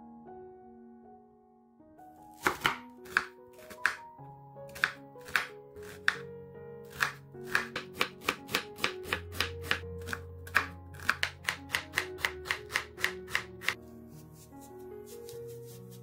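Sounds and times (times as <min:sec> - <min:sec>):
soft background music: 0:00.0 - 0:16.0
knife chopping on wooden board: 0:02.4 - 0:04.0, 0:04.7 - 0:06.2, 0:06.9 - 0:13.8.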